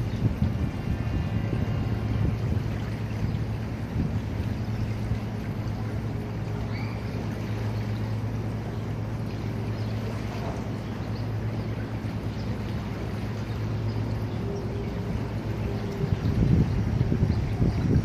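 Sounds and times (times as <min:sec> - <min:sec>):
low engine drone: 0:00.0 - 0:18.0.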